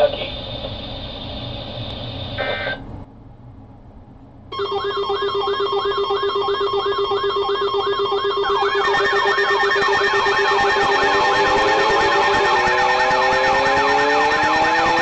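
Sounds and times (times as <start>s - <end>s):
weather alert radio warbling chirp: 0.0s - 0.5s, 2.3s - 2.8s, 4.6s - 13.8s
high held alarm tones: 4.5s - 15.0s
pulsing alarm beep: 4.5s - 15.0s.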